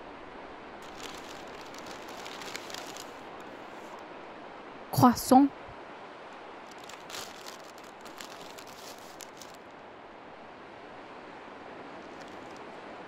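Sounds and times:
outdoor hiss: 0:00.0 - 0:05.5
paper bag crinkling: 0:00.8 - 0:03.9, 0:06.7 - 0:09.6, 0:12.1 - 0:12.6.

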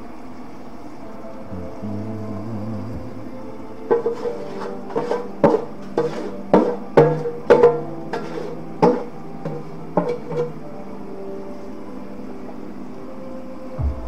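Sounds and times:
steady hum: 0:00.0 - 0:14.0
plucked notes music: 0:01.5 - 0:12.8.

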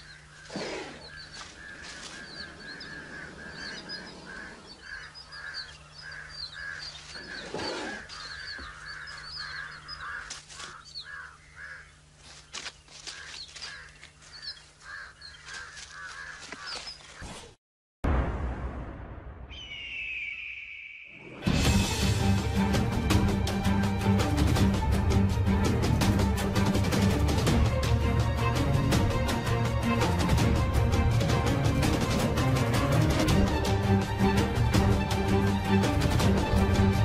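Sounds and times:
lower pulsing bird calls: 0:00.0 - 0:17.4, 0:19.5 - 0:21.5
high bird chirps: 0:19.5 - 0:21.5.

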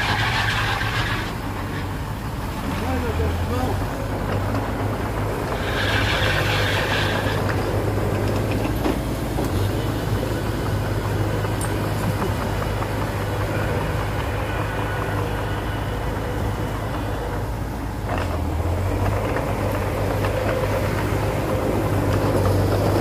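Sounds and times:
heavy diesel machinery running: 0:00.0 - 0:23.0
high metallic squeal: 0:05.6 - 0:07.8.

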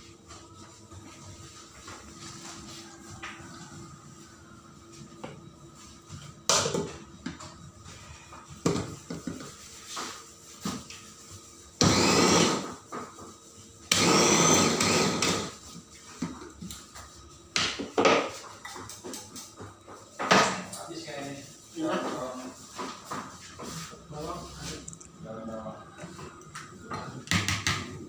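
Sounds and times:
food chopper motor whine: 0:11.8 - 0:12.7, 0:13.9 - 0:15.6.

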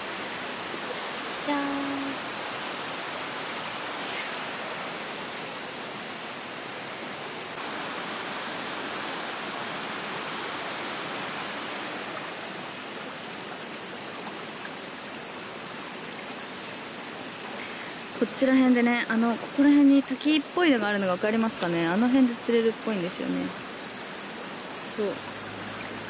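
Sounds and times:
high insect drone: 0:00.0 - 0:26.0
river rushing over stones: 0:00.0 - 0:26.0.

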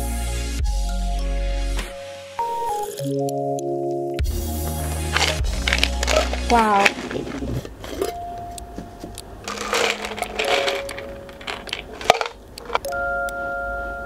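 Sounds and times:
plastic switches rattling in jar: 0:05.0 - 0:08.2, 0:09.0 - 0:12.9.

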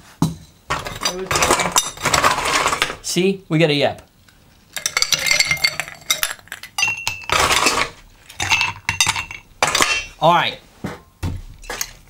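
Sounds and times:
ice cubes clinking in glass: 0:04.8 - 0:10.1.

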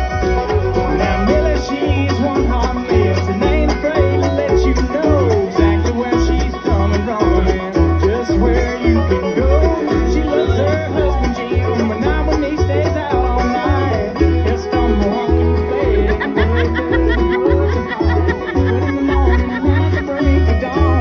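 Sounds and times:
bluegrass band playing: 0:00.0 - 0:21.0
low bass notes: 0:00.0 - 0:21.0.

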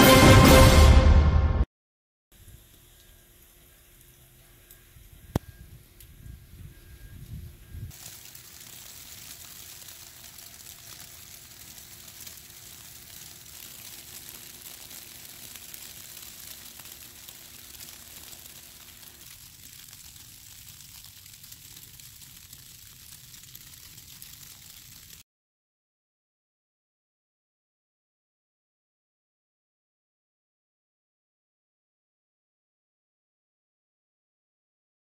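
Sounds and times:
snow falling hiss: 0:02.4 - 0:04.8, 0:07.9 - 0:25.2.

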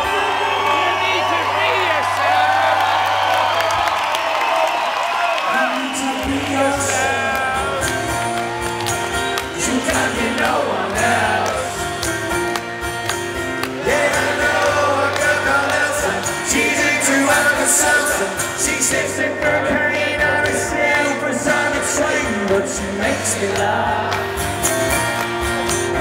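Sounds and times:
man singing: 0:05.5 - 0:08.2, 0:09.5 - 0:11.9, 0:13.8 - 0:24.2
live band playing: 0:06.2 - 0:26.0
strummed acoustic guitar: 0:06.2 - 0:26.0.

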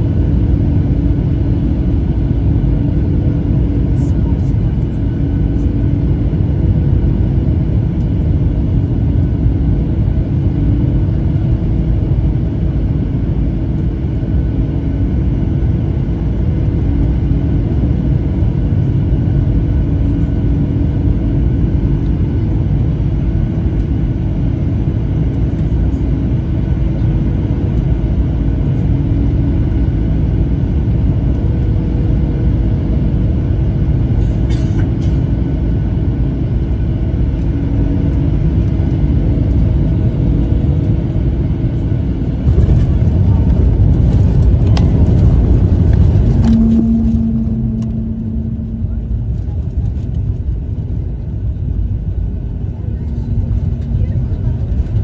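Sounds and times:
jet cabin engine rumble: 0:00.0 - 0:55.0
steady hum tones: 0:00.0 - 0:55.0.

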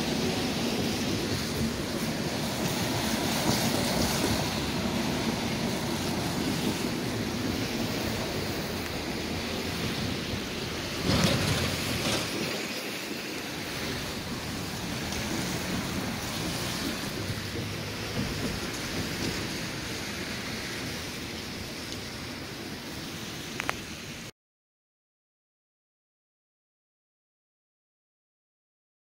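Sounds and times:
road traffic hum: 0:00.0 - 0:24.3
wind rushing on microphone: 0:00.0 - 0:24.3.

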